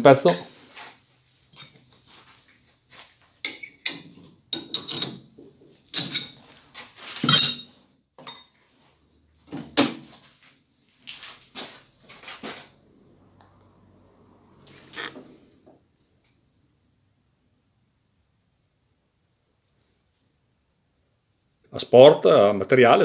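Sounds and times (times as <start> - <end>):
metal clanks and knocks: 3.5 - 6.4.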